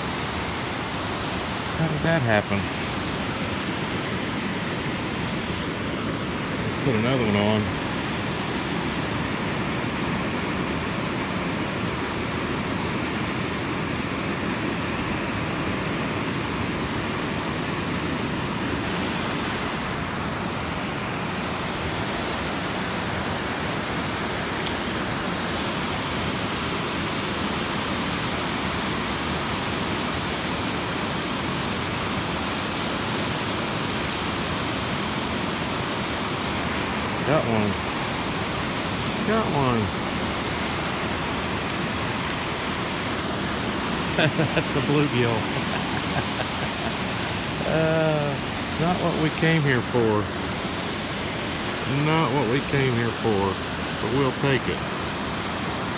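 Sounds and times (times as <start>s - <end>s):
water rushing from spillway: 0.0s - 55.9s.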